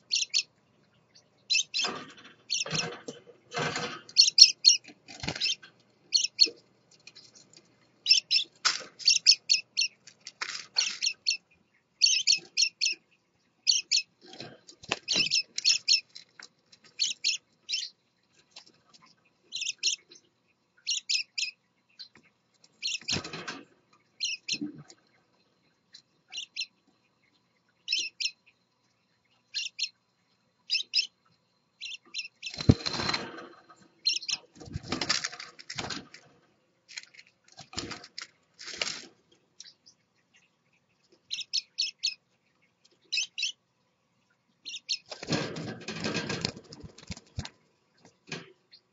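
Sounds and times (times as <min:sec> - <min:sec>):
parakeets chirping: 0:00.0 - 0:00.5, 0:01.1 - 0:03.0, 0:03.6 - 0:06.6, 0:08.0 - 0:10.0, 0:10.7 - 0:13.0, 0:13.6 - 0:16.1, 0:16.9 - 0:18.0, 0:19.0 - 0:20.2, 0:20.8 - 0:22.1, 0:22.8 - 0:23.4, 0:24.1 - 0:24.8, 0:26.3 - 0:26.8, 0:27.8 - 0:28.5, 0:29.5 - 0:30.0, 0:30.7 - 0:31.1, 0:31.8 - 0:33.3, 0:34.0 - 0:35.2, 0:41.3 - 0:42.2, 0:43.0 - 0:43.6, 0:44.6 - 0:45.4.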